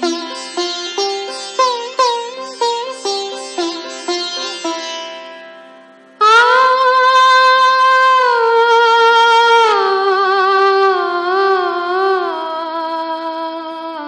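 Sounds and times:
woman singing wordless vocalise: 0:06.2 - 0:14.0.

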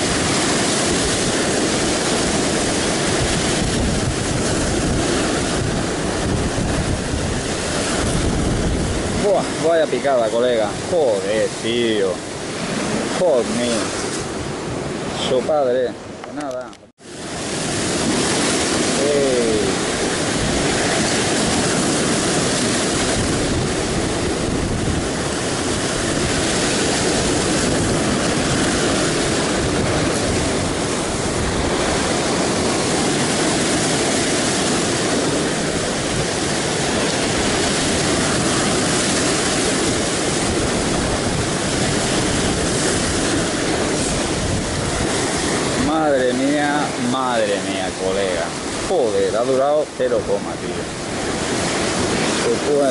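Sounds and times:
heavy surf breaking on rocks: 0:00.0 - 0:52.9.

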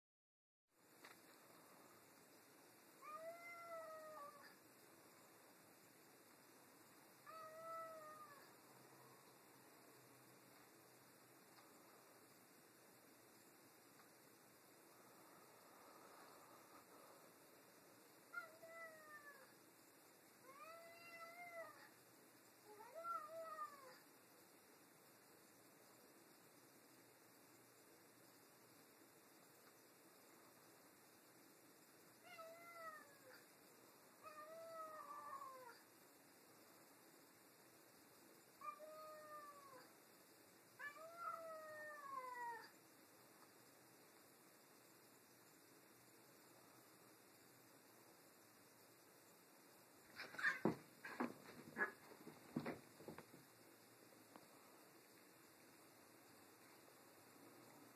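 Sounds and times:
cat yowling: 0:03.0 - 0:04.5, 0:07.3 - 0:08.5, 0:18.3 - 0:19.5, 0:20.5 - 0:21.9, 0:22.7 - 0:24.0, 0:32.2 - 0:33.4, 0:34.2 - 0:35.8, 0:38.6 - 0:39.9, 0:40.8 - 0:42.7, 0:50.2 - 0:50.8.

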